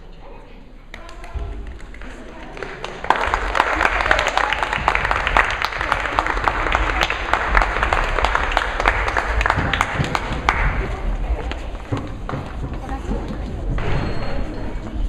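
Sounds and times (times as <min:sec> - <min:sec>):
audience applauding: 0:01.0 - 0:11.6.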